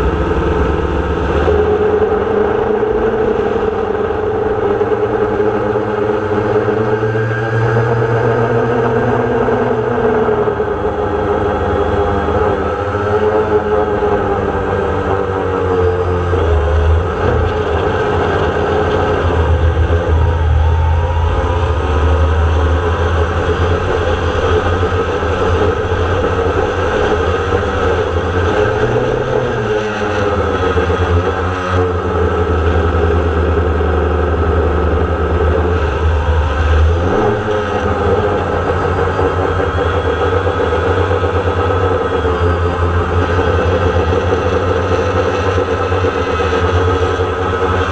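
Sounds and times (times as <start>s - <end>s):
deep low rumble: 0.0s - 6.1s, 16.0s - 29.8s
drone propellers buzzing: 0.0s - 47.9s.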